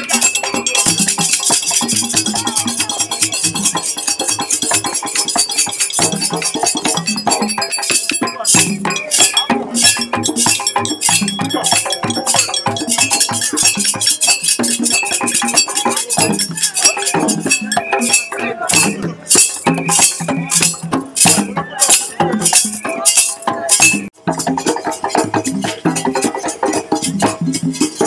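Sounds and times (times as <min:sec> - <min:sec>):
hand drums fast rhythm: 0:00.0 - 0:28.0.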